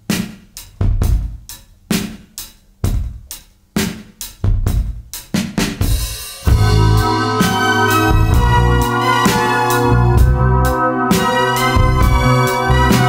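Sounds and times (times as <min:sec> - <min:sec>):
drum kit beat: 0:00.0 - 0:13.0.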